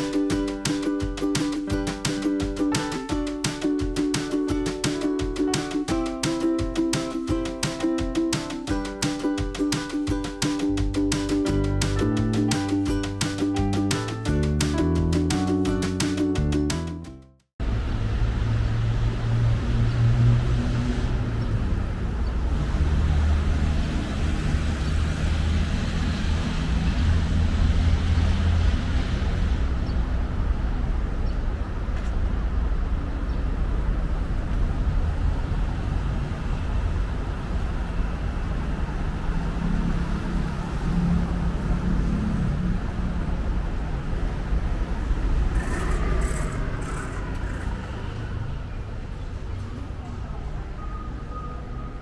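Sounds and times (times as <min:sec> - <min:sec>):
engine hums: 0:17.6 - 0:50.6
road traffic rumble: 0:17.6 - 0:52.0.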